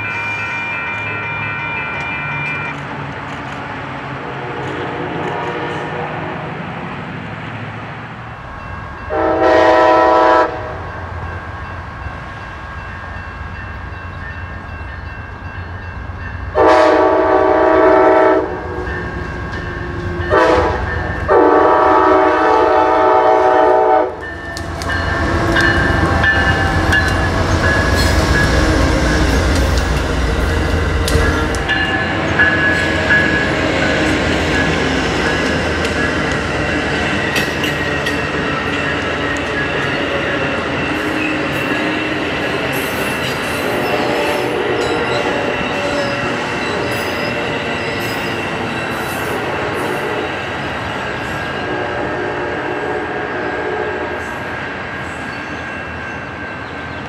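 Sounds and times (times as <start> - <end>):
locomotive horn blasts: 0.0 - 2.8, 4.2 - 6.3, 9.1 - 10.8, 16.6 - 18.9, 20.3 - 26.6, 51.6 - 54.3.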